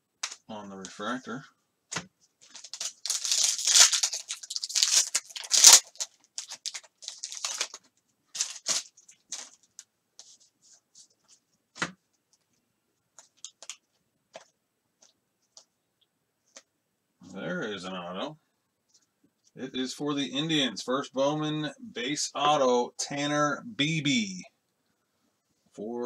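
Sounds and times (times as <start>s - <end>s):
cards rustling and clicking: 1.9s - 15.7s
wrapper tearing and crinkling: 2.4s - 9.8s.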